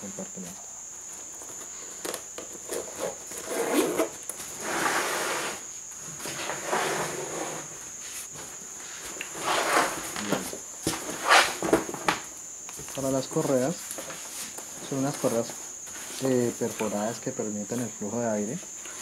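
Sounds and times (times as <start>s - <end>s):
zipper pulled along pocket: 3.0s - 4.1s.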